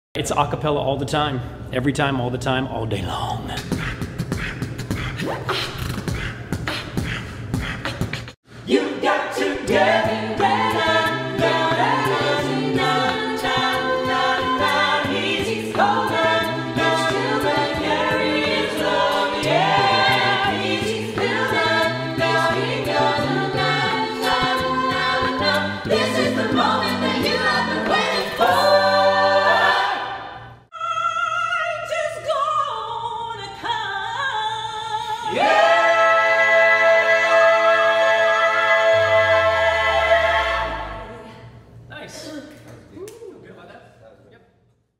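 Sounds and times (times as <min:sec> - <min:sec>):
beatboxing: 0:03.1 - 0:08.4
vocal group singing in harmony: 0:03.5 - 0:41.7.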